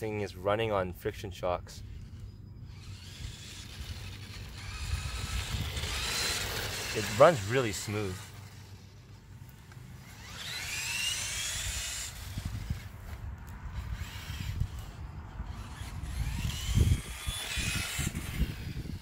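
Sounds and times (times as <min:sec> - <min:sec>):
toy car electric motor whining: 0:01.8 - 0:19.0.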